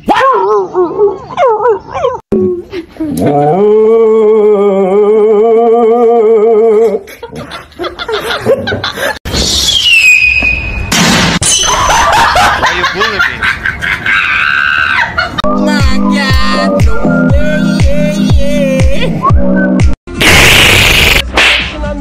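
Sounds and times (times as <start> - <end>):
high squeal falling in pitch: 9.3 - 11.8.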